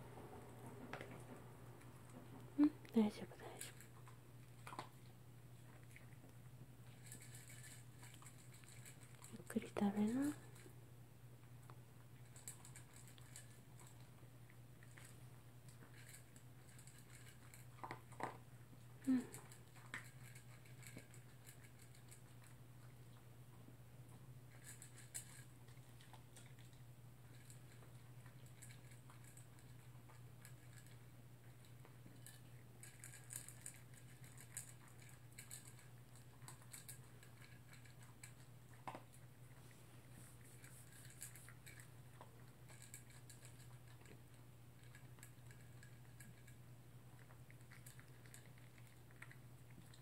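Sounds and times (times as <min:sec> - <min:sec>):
dog crunching dry kibble: 0:01.8 - 0:10.8, 0:11.4 - 0:50.0.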